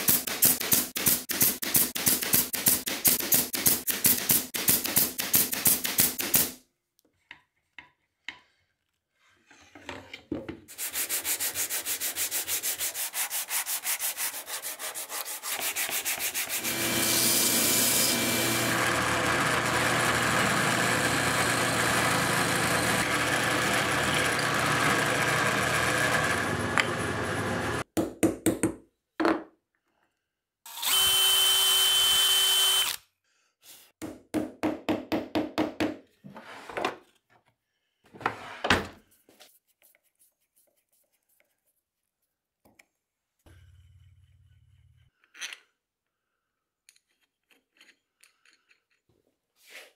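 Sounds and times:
drill press boring into wood: 16.6 - 27.8, 30.7 - 33.0
power tool bursts: 30.7 - 33.0.

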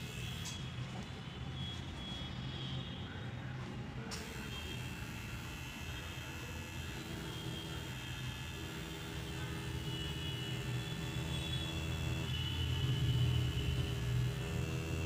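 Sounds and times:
tattoo machine buzzing: 0.0 - 0.7, 4.2 - 15.0.

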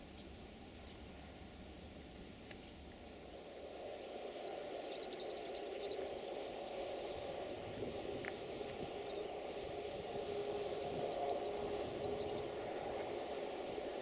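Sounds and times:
birds chirping: 2.5 - 14.0
diesel train approaching: 2.9 - 14.0.

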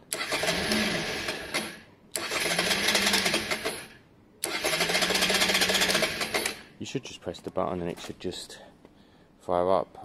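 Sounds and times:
motorcycle electric starter cranking: 0.1 - 6.7.

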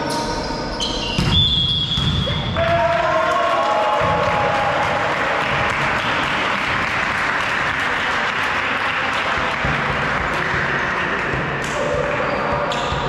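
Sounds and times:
many hands clapping: 2.7 - 12.3.

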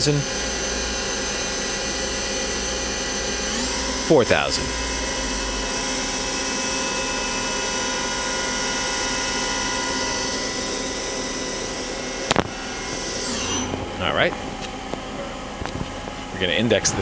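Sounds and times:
lathe spindle whine: 0.0 - 17.0.

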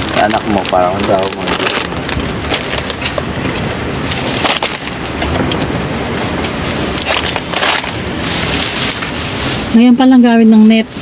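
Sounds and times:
groceries knocking and rustling: 0.0 - 10.2
wind buffeting microphone: 0.0 - 11.0.

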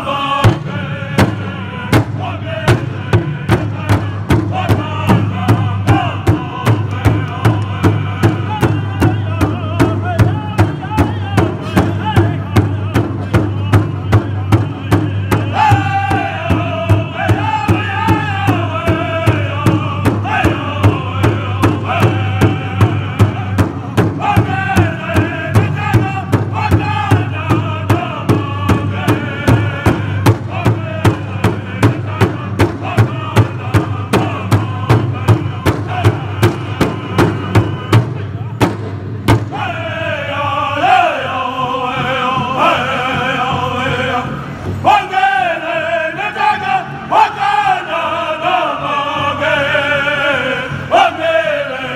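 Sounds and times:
group singing in high voices: 0.0 - 38.1, 39.4 - 51.9
large drum steady beat: 0.4 - 40.0.

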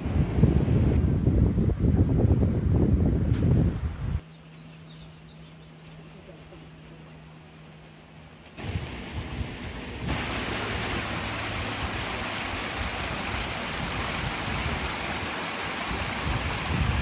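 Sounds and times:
wind: 0.0 - 17.0
sea surf rushing: 8.6 - 17.0.

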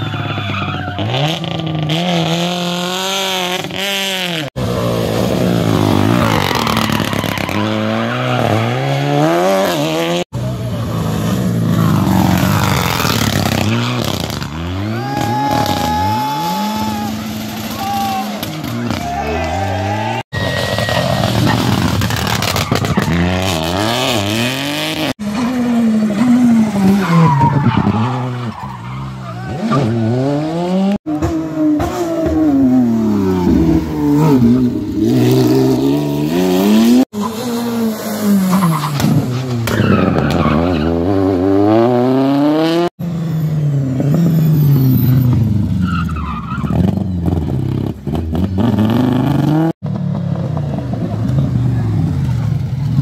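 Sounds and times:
rally car engines revving: 0.0 - 53.0
tyre squeal: 13.5 - 23.6.

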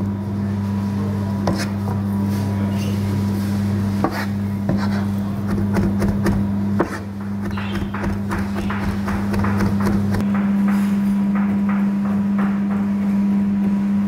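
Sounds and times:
steady low hum: 0.0 - 14.0
knife chopping meat on a board: 4.0 - 10.5.

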